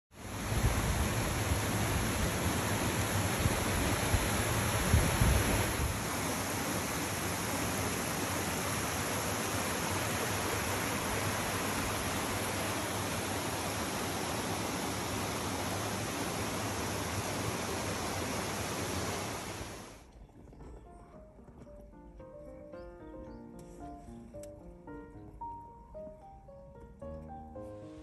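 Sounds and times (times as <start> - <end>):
steady rushing noise: 0.2 - 7.2.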